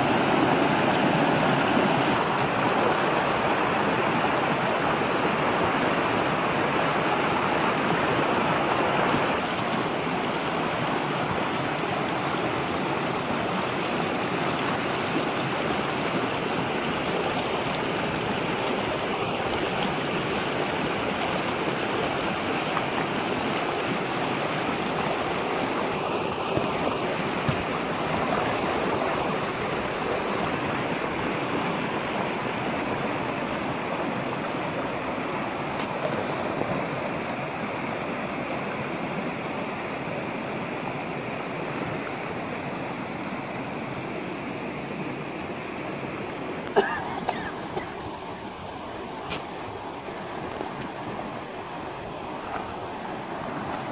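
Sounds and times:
stream running over stones: 0:00.0 - 0:53.9.

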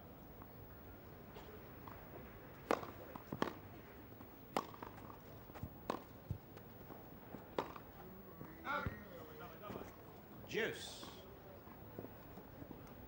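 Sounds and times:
tennis racket hitting ball: 0:02.6 - 0:03.6, 0:04.5 - 0:05.2, 0:05.9 - 0:06.1, 0:07.6 - 0:07.9.

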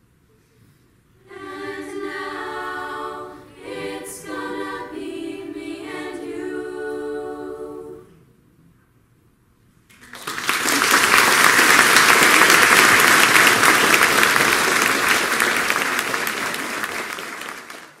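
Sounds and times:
a cappella singing: 0:01.2 - 0:08.3
audience applause: 0:09.9 - 0:18.0.

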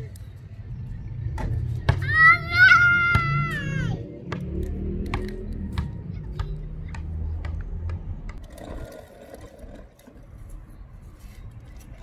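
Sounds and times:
basketball bouncing on asphalt: 0:01.2 - 0:02.2, 0:04.1 - 0:09.0
plastic toy car rolling on asphalt: 0:08.3 - 0:12.0.

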